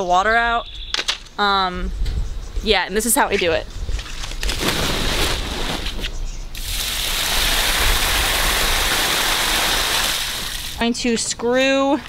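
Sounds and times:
water rushing and splashing: 6.6 - 10.8.

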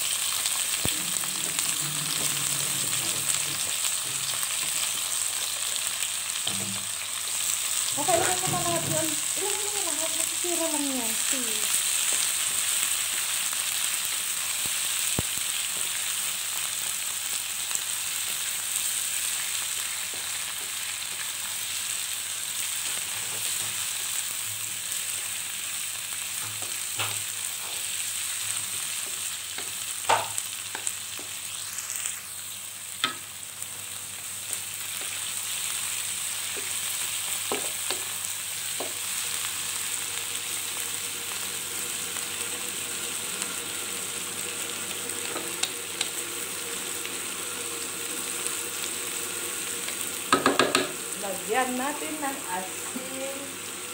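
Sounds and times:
shrimp sizzling in oil: 0.0 - 53.9
spatula knocking against pan: 50.3 - 51.0.

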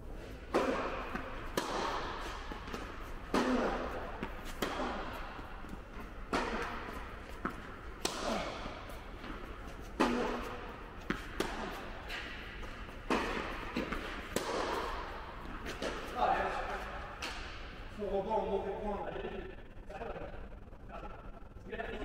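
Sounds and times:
racket hitting tennis ball: 0.2 - 17.7
tennis ball bouncing on court: 0.5 - 16.1.

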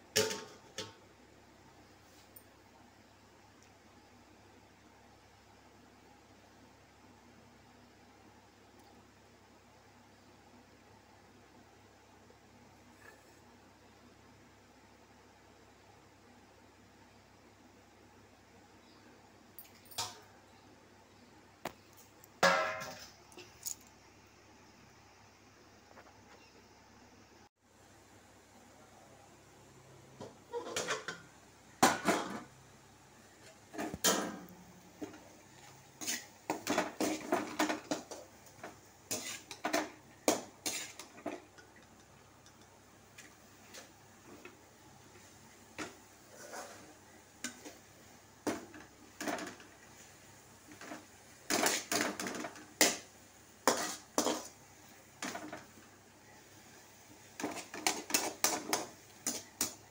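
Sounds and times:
metal spatula scraping a wok: 30.5 - 31.2, 35.0 - 41.5, 45.8 - 47.8, 50.7 - 54.6, 57.4 - 59.9.

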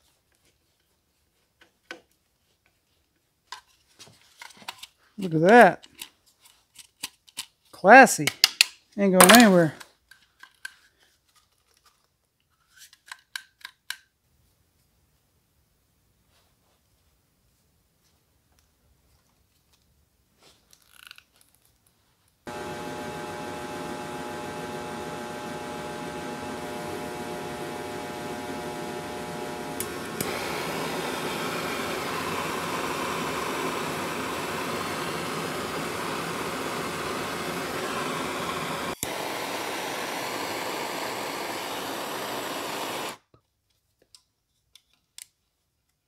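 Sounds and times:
steady rushing blower noise: 22.5 - 43.2.

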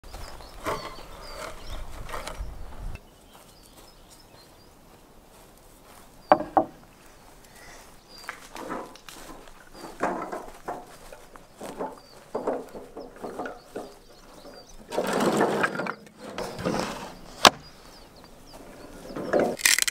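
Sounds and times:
knocks on wooden table: 6.3 - 6.7.

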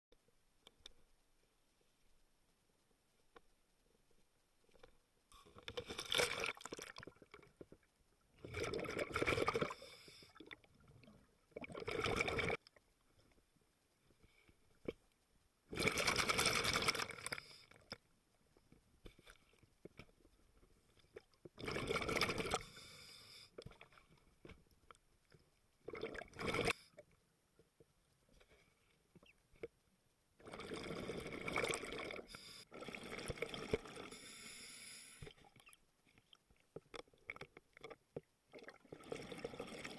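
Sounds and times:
exhaled bubbles underwater: 8.4 - 9.8, 10.4 - 12.6, 21.2 - 22.7, 25.8 - 26.7, 30.4 - 34.1, 38.5 - 39.9.

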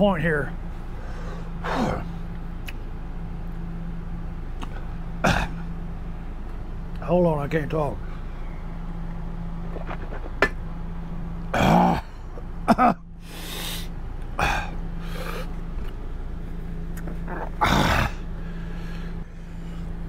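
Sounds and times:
air conditioner hum: 0.0 - 20.0
man coughing and gasping: 5.2 - 5.7, 11.5 - 13.1, 14.4 - 14.8.

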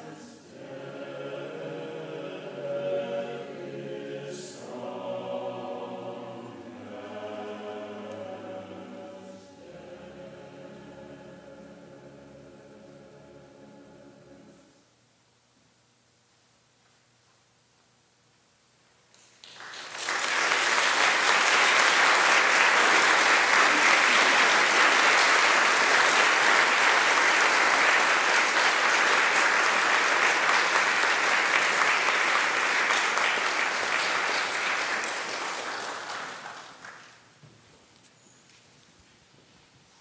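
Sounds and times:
audience applauding: 19.4 - 37.3.

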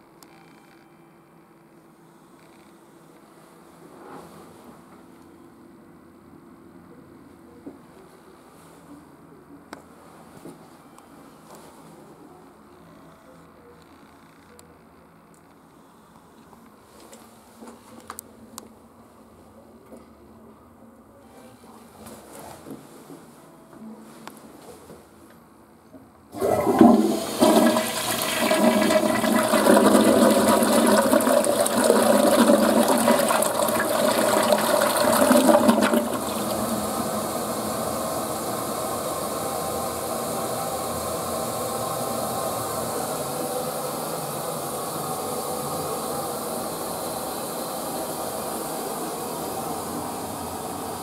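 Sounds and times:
toilet flushing: 26.3 - 51.0.

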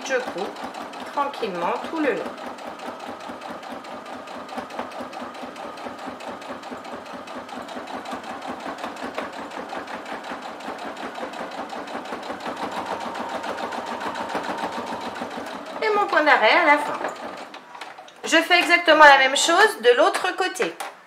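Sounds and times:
sewing machine stitching: 0.0 - 18.4.

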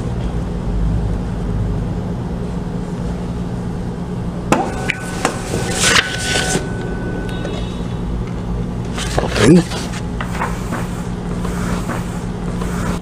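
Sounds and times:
steady low hum: 0.0 - 13.0
thin mechanical whine: 4.5 - 11.8.

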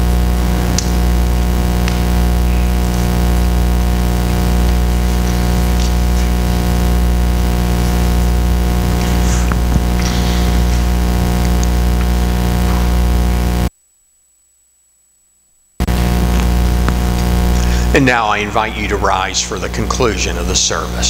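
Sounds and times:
loud electrical hum: 0.0 - 21.0.

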